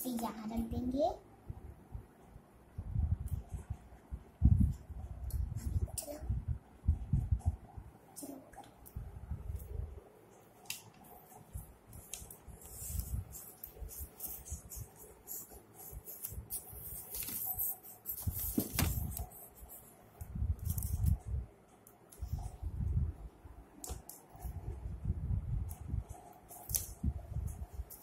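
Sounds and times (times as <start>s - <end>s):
plastic toys handling bumps and rustles: 18.3s - 19.1s.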